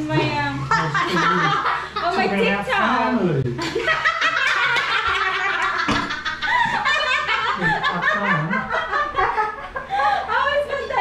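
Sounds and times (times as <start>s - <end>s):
people laughing: 0.6s - 2.2s, 3.6s - 10.6s.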